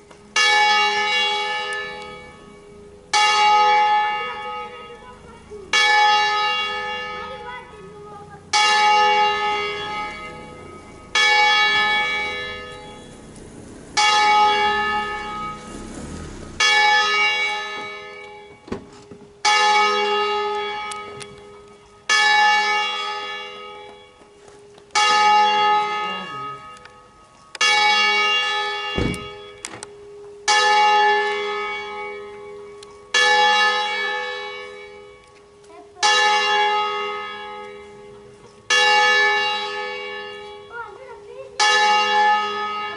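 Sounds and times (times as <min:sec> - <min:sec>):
swinging church bell ringing: 0:00.0 - 0:42.9
short low knocks: 0:28.9 - 0:29.5.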